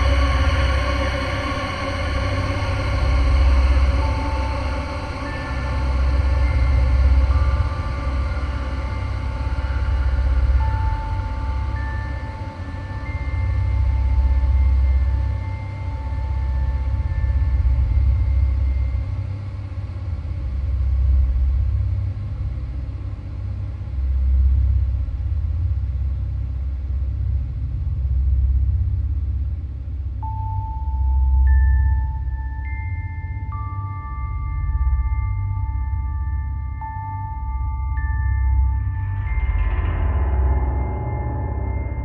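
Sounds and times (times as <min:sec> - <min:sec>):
deep rumbling drone: 0:00.0 - 0:42.0
chiming tone: 0:30.2 - 0:42.0.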